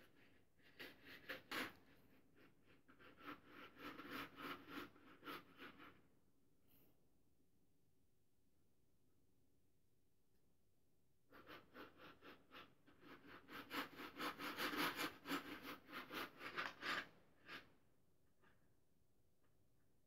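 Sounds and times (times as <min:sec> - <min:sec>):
pencil scratching on paper: 0:00.0 - 0:06.1, 0:11.3 - 0:17.7.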